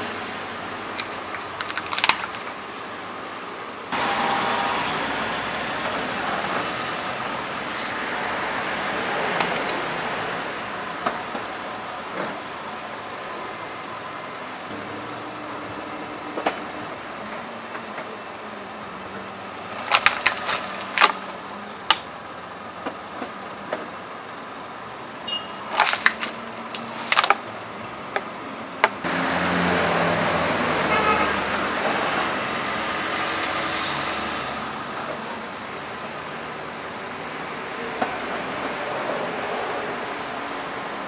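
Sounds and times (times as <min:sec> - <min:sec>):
plastic bottles crushed by tyre: 0:00.9 - 0:02.6, 0:19.6 - 0:22.1, 0:25.6 - 0:27.6.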